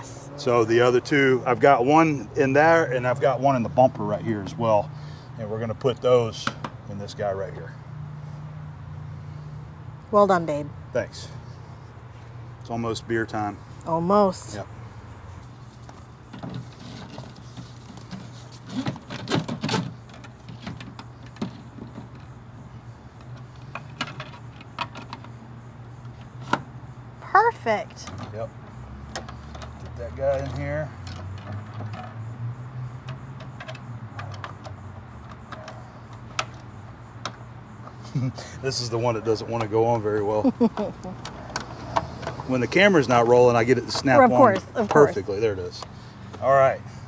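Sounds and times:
knocks and scrapes: 0:15.6 - 0:22.4
hose rustling and scraping in a tube: 0:16.4 - 0:20.9.

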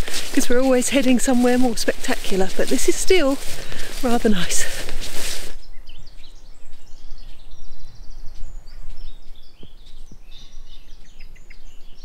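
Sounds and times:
songbirds chirping and singing: 0:00.0 - 0:12.0.

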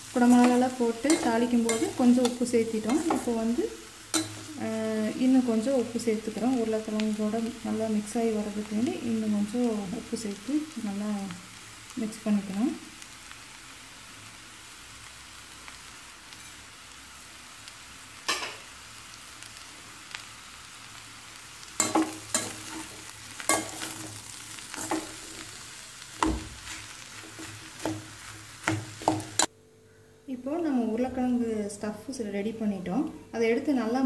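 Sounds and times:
steady low hiss: 0:00.0 - 0:34.0.

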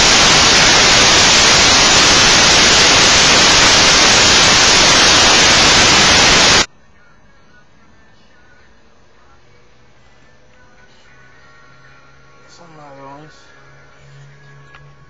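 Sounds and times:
static hiss: 0:00.0 - 0:06.7.

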